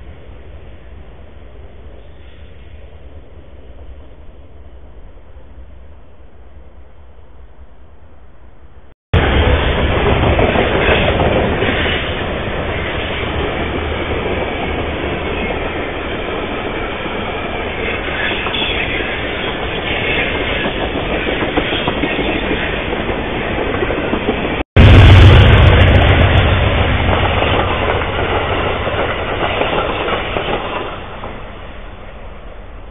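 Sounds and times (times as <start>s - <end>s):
freight train rattling on rails: 9.2s - 32.9s.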